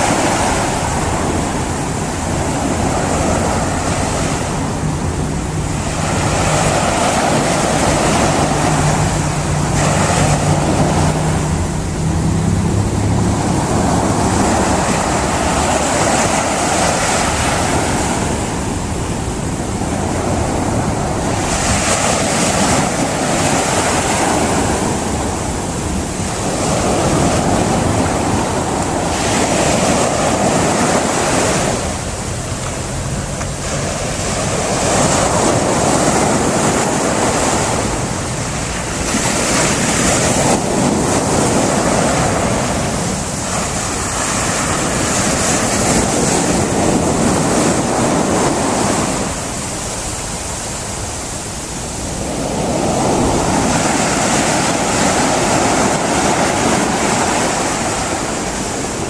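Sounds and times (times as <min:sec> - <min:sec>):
surf breaking on pebble beach: 0:32.8 - 0:59.0.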